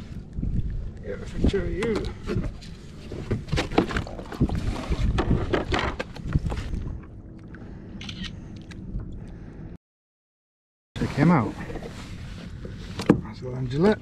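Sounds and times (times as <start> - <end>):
wind rumbling on microphone: 0.0 - 9.8
knocks and rattles on plastic kayak: 1.8 - 6.8.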